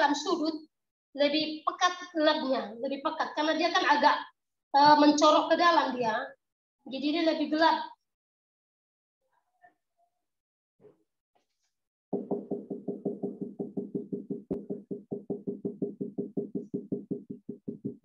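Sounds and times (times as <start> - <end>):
marker tapping on whiteboard: 12.2 - 18.0.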